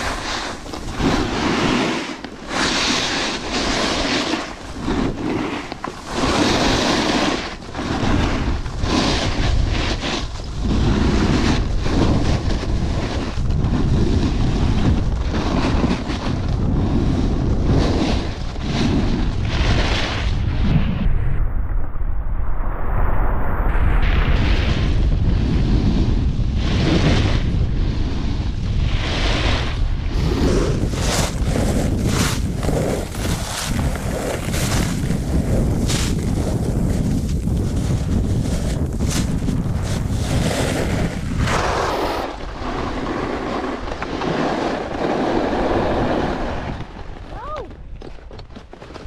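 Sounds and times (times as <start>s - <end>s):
snowboard scraping through snow: 0.0s - 21.4s, 23.7s - 47.4s
wind buffeting microphone: 0.0s - 49.0s.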